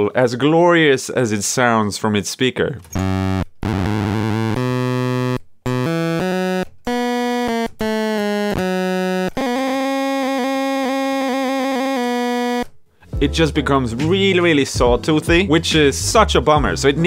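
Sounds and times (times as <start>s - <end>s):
buzzy toy organ notes: 3.0s - 12.7s.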